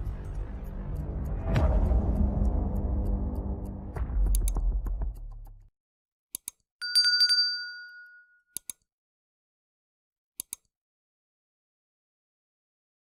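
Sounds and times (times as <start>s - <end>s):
notification bell ding: 6.8s - 8.5s
mouse clicks: 8.6s - 8.9s, 10.4s - 10.7s.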